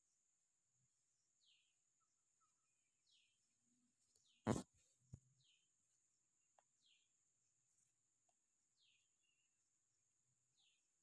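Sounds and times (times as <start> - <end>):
bird chirping: 1.4 - 5.8, 6.6 - 7.2, 8.6 - 9.7, 10.3 - 11.0.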